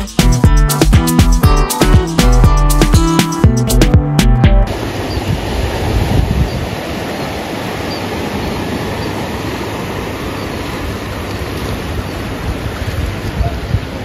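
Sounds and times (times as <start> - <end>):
ocean surf rushing: 4.6 - 14.0.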